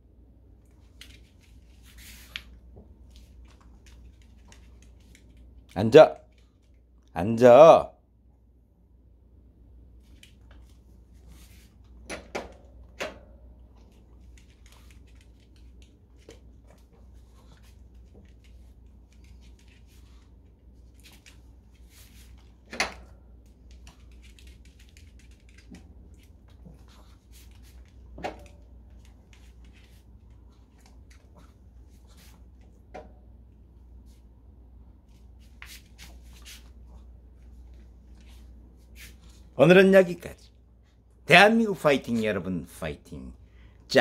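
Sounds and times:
dog claws clicking on floor: 2.2s - 6.8s, 13.8s - 20.2s, 23.5s - 31.5s.

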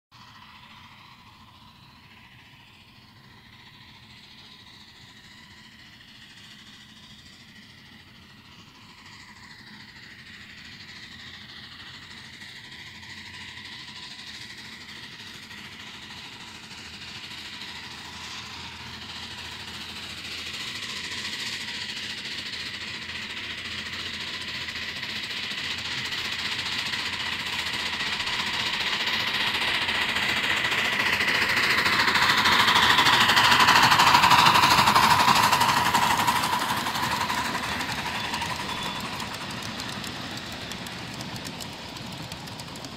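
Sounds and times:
miniature steam train running: 0.1s - 42.9s.

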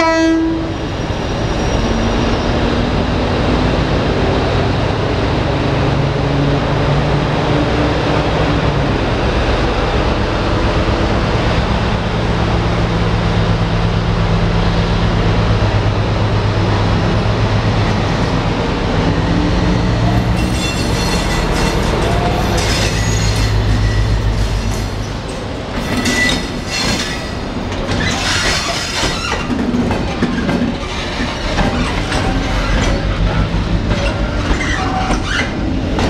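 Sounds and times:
locomotive horn blast: 0.0s - 0.7s
diesel locomotive engine rumbling: 0.0s - 36.0s.

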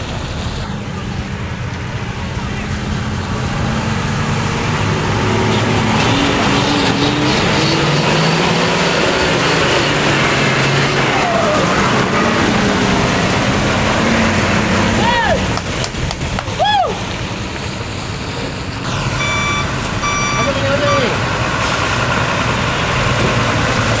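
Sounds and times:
truck diesel engine running: 0.0s - 24.0s.

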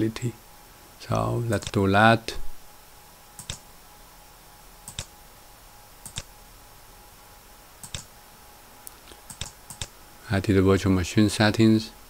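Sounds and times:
faint steady hum: 0.0s - 12.0s
computer mouse clicking: 1.5s - 1.8s, 3.4s - 3.7s, 4.9s - 5.2s, 6.0s - 6.3s, 7.8s - 8.1s, 9.1s - 10.0s.

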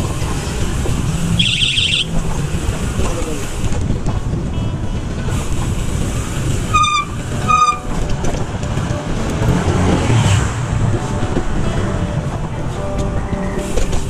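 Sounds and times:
road noise: 0.0s - 14.0s
wind rush: 0.0s - 14.0s
short high-pitched beeps: 1.4s - 2.1s.

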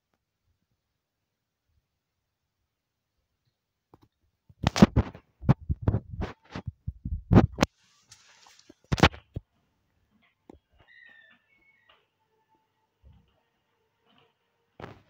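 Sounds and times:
microphone handling thumps: 4.6s - 7.7s
microphone rustle: 4.6s - 9.4s.

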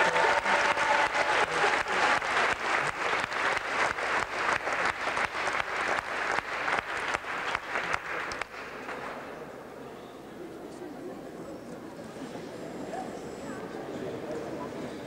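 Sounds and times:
crowd clapping in time: 0.0s - 9.2s.

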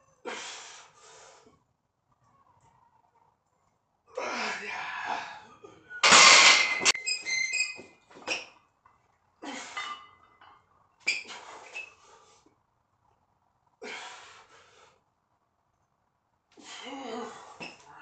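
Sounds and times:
man breathing hard: 0.2s - 1.6s, 13.8s - 15.0s.

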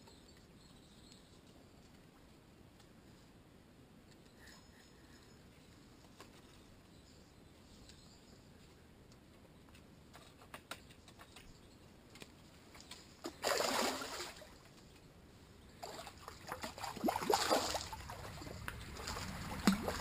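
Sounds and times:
water splashing at riverbank: 12.8s - 14.8s, 15.8s - 20.0s.

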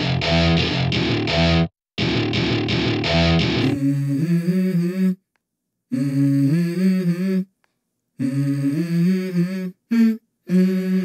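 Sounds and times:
distorted electric guitar: 0.0s - 4.1s
wordless vocal melody: 3.6s - 5.3s, 5.9s - 7.6s, 8.2s - 11.0s.

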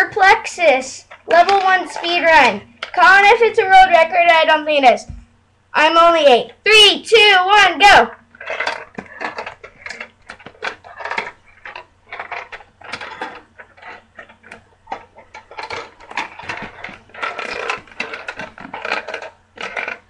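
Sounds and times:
steel ball rattling in plastic maze: 0.0s - 4.9s, 7.5s - 20.0s.

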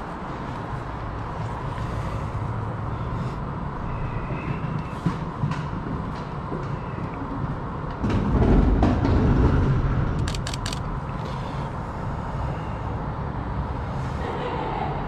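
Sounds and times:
city ambience: 0.0s - 15.0s
sharp clicks: 10.2s - 10.9s.

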